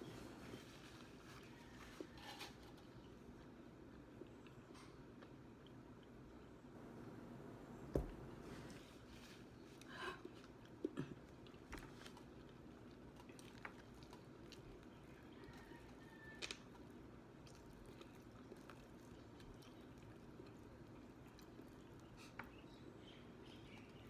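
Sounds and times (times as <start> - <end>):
faint chewing: 0.0 - 7.0, 8.0 - 24.0.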